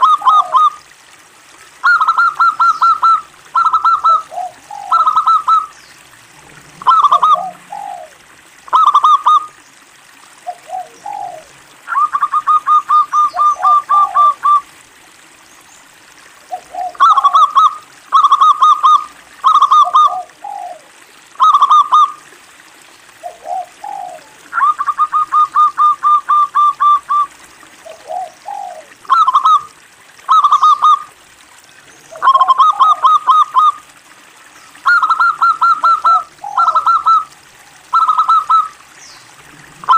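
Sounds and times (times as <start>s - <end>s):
dove cooing: 0.0s - 0.8s, 1.8s - 5.7s, 6.4s - 9.5s, 10.4s - 14.7s, 16.5s - 22.2s, 23.2s - 29.7s, 30.3s - 31.1s, 32.0s - 33.8s, 34.8s - 38.8s, 39.4s - 39.9s.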